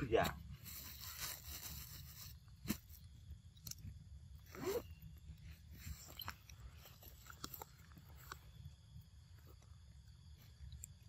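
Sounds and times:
monkeys chewing fruit: 5.6 - 8.9.

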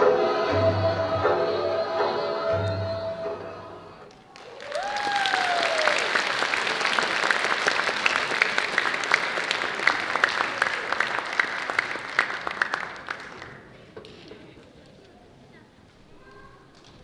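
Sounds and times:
audience applauding: 4.1 - 13.8.

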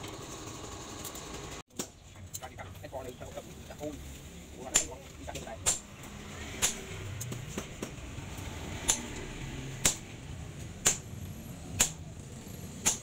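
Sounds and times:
hammer striking chisel on metal: 4.7 - 5.0, 6.6 - 8.0, 8.9 - 9.2.

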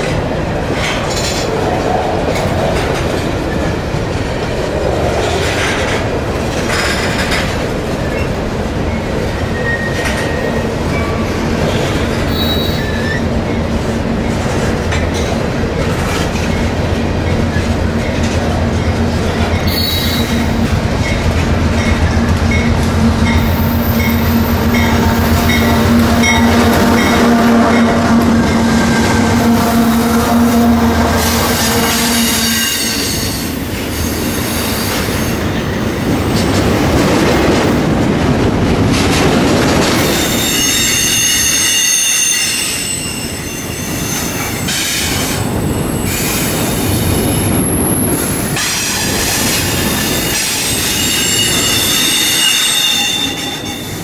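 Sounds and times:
diesel locomotive engine drone: 0.0 - 41.1
train cars rolling by: 0.0 - 54.0.

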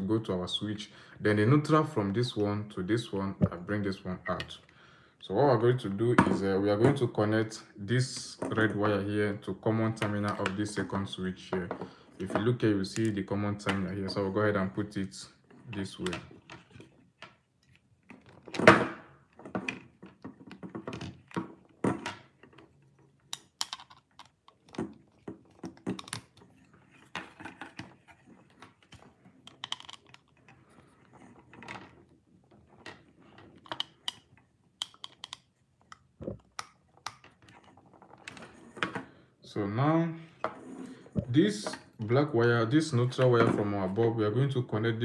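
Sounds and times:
small clicks and knocks: 19.3 - 39.0.

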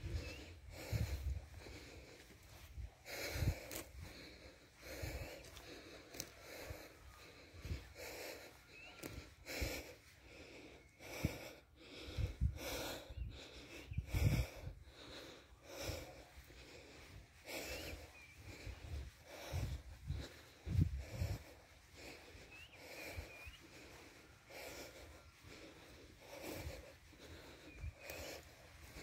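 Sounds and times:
person breathing: 0.0 - 29.0
footsteps walking: 3.5 - 6.7.

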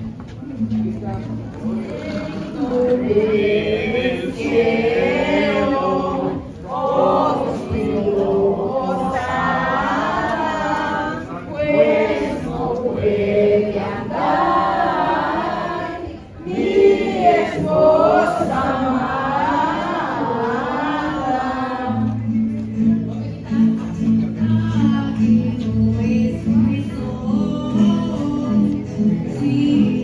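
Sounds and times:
group singing a hymn unaccompanied: 1.8 - 22.4.

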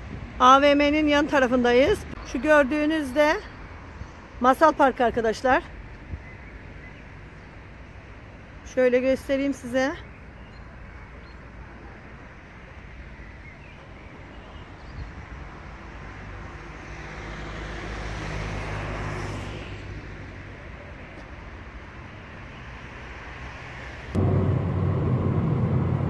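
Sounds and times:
hum of cars: 0.0 - 26.0
vehicle passing close: 23.3 - 26.0.

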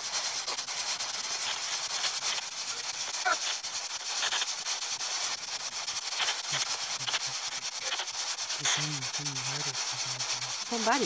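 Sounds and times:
pulsing radio static: 0.0 - 11.0
faint low voice: 8.6 - 10.4.

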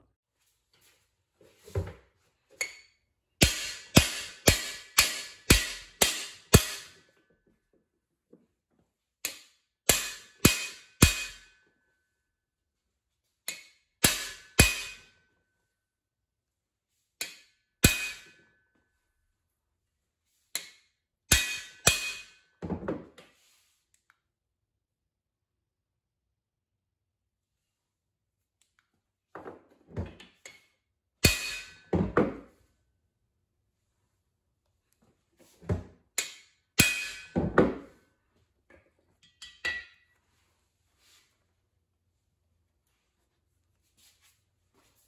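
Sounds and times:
hammer striking metal: 3.4 - 7.0, 9.2 - 11.6, 13.5 - 15.1, 17.2 - 18.4, 20.6 - 22.4, 31.2 - 32.1, 36.2 - 37.5.

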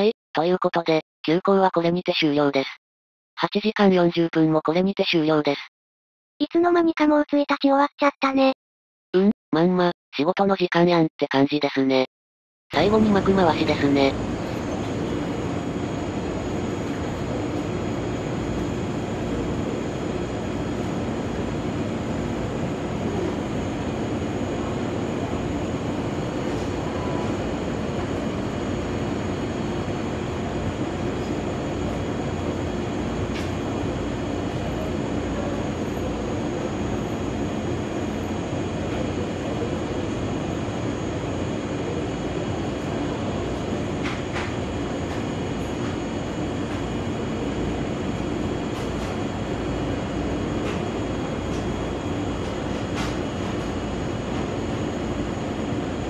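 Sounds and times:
train equipment humming: 12.8 - 56.0.

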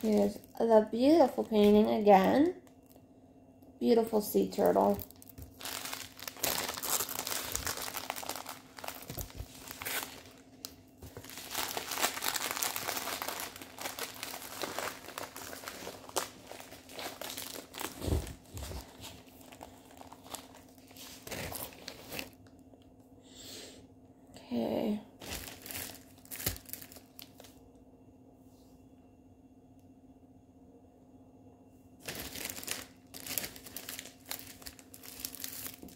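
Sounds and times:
plastic packaging crinkling: 0.0 - 3.1, 4.0 - 22.6, 25.2 - 27.6, 32.0 - 35.9.

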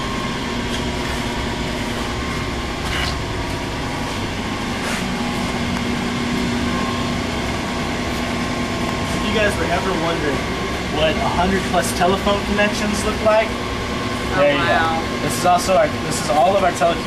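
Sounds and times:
low hum tone: 0.0 - 15.3
air-conditioning machinery drone: 0.0 - 17.0.

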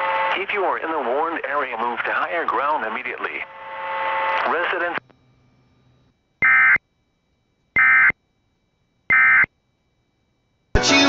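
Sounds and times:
buzzy digital chirps: 6.4 - 6.8, 7.8 - 8.2, 9.1 - 9.5
music: 10.8 - 11.0.

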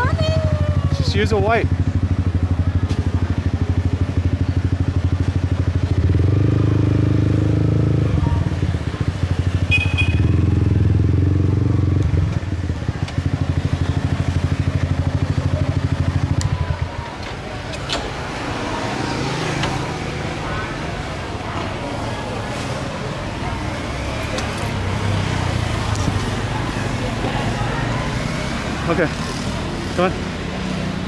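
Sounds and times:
motorcycle engine running: 0.0 - 17.7.

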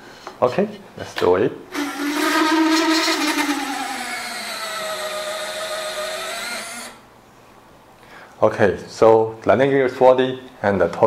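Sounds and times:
servo whining: 1.7 - 7.0.

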